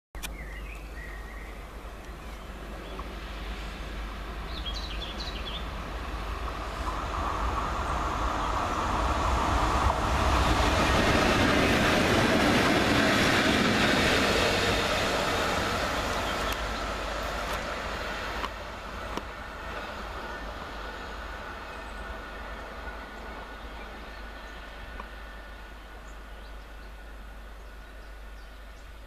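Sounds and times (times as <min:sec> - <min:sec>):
bird chirps: 0:00.2 - 0:03.0
diesel locomotive engine drone: 0:00.2 - 0:29.0
wheel-on-rail noise: 0:00.8 - 0:28.8.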